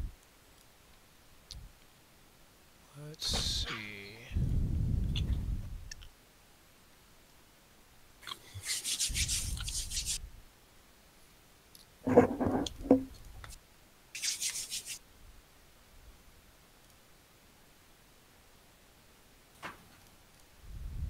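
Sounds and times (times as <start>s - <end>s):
rubbing and scraping: 8.5s - 10.2s, 12.0s - 13.1s, 14.2s - 15.0s
knock and rattle: 12.1s - 13.1s.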